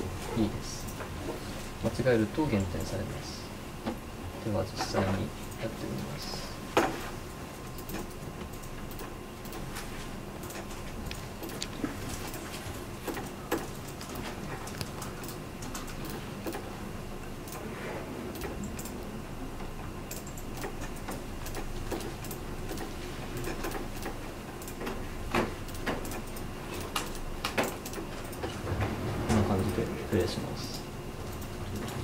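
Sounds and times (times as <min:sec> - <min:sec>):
faint hum: 0:00.0 - 0:32.0
computer mouse clicking: 0:07.7 - 0:09.8, 0:10.4 - 0:16.7, 0:18.3 - 0:19.0, 0:19.6 - 0:28.5, 0:30.7 - 0:32.0.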